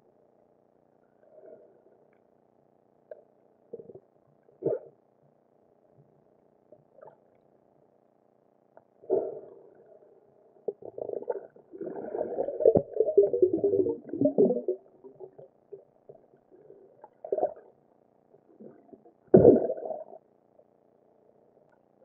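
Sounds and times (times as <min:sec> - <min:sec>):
muffled underwater gurgling: 0:10.7 - 0:17.7, 0:18.5 - 0:20.2.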